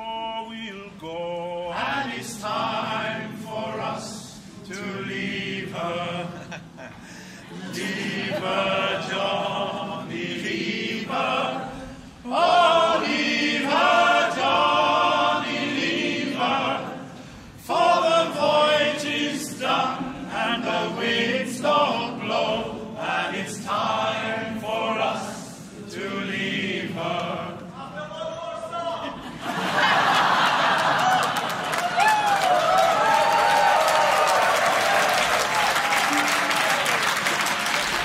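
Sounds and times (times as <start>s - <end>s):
many voices singing a shanty: 0.0s - 6.8s, 7.4s - 27.8s.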